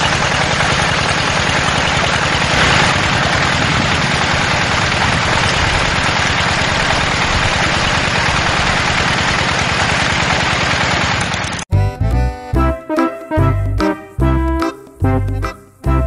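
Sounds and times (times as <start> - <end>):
small diesel engine running: 0.0 - 11.7
water splashing onto gravel: 2.4 - 11.2
music: 11.7 - 16.0.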